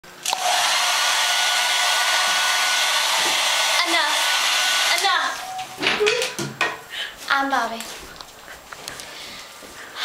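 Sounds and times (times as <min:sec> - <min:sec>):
hair dryer blowing: 0:00.2 - 0:05.7.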